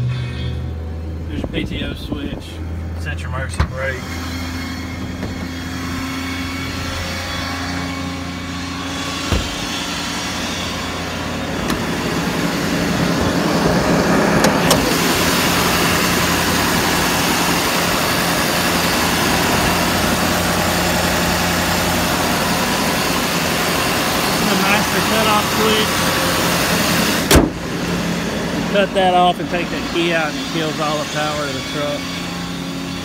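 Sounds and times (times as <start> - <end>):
diesel engine idling: 0.1 - 33.0
sharp knock: 27.3 - 27.6.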